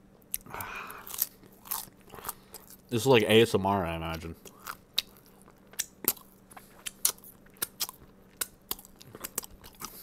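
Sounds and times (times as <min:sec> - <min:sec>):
chewing with wet mouth clicks: 0:04.1 - 0:10.0.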